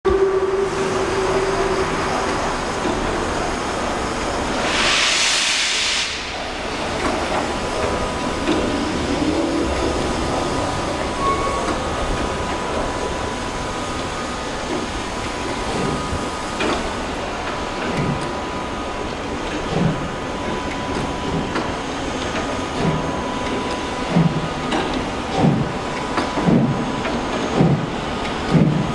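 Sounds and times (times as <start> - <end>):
steam locomotive exhaust beating: 0.1 - 28.9
loud hiss of steam: 0.6 - 11.2.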